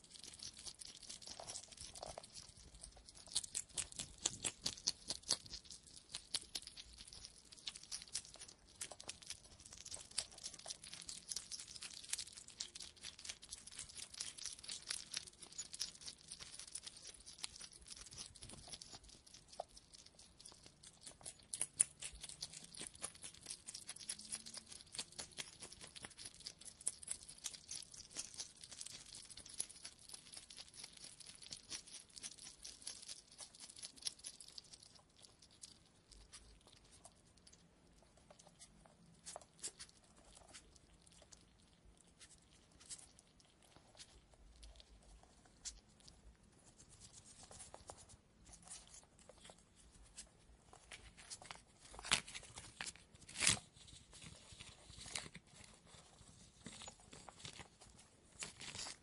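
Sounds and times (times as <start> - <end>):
hedgehog clicking: 0.0 - 46.2.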